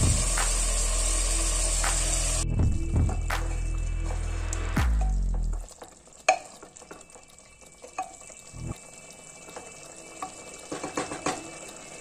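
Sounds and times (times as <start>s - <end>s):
faint sizzle: 3.5s - 12.0s.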